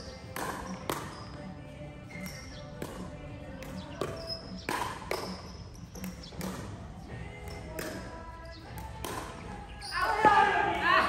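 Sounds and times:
ball hits in a hall: 0.0 - 11.0
shoes squeaking on floor: 0.6 - 2.8, 3.9 - 6.5, 9.6 - 10.6.

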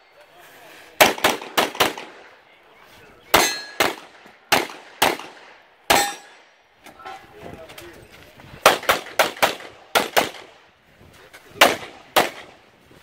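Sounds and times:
pistol shots: 1.0 - 2.2, 3.4 - 6.4, 8.6 - 10.5, 11.6 - 12.6.

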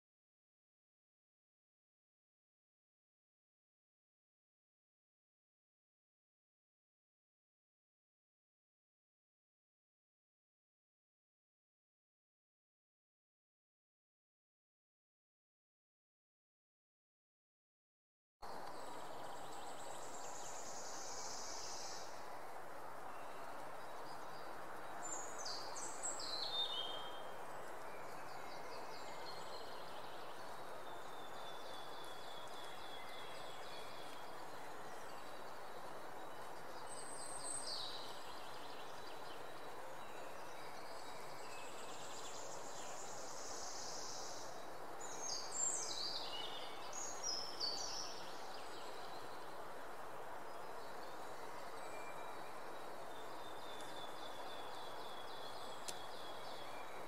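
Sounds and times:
songbirds singing: 18.4 - 57.0
steady background hiss: 18.4 - 57.0.

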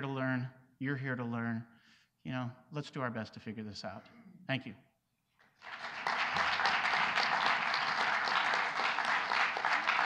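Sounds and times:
audience applauding: 5.5 - 10.0.

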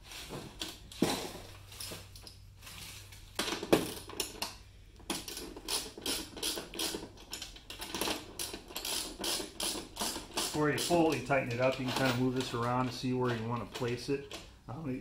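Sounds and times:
metal hardware clinking: 3.4 - 14.5.

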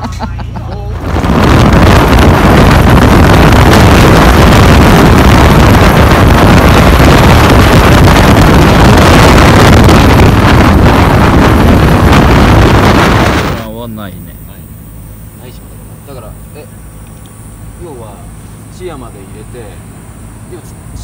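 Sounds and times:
motorcycle engine running: 0.0 - 21.0
wind buffeting microphone: 0.8 - 14.0.

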